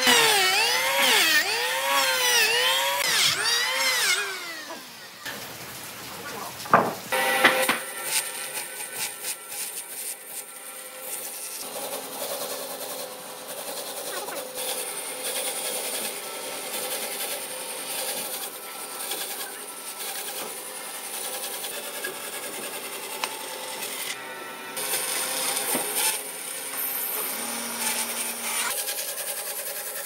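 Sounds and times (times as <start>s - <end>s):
bandsaw cutting through log: 0.0s - 5.0s, 7.1s - 30.0s.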